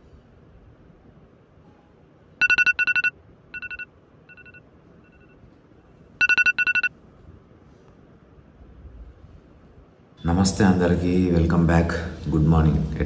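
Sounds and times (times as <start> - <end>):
alarm beeping: 2.4 - 5.4, 6.2 - 6.9.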